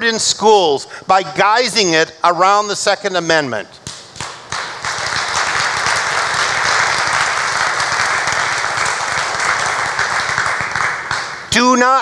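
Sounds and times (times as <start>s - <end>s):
crowd applauding: 4.2s - 11.5s.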